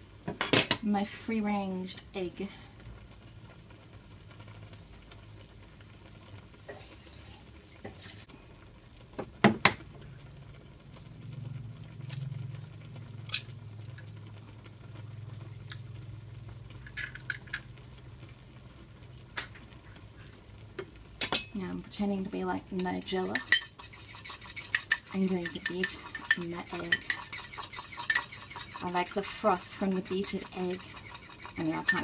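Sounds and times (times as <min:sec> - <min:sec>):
low steady hum: 0:09.9 - 0:32.0.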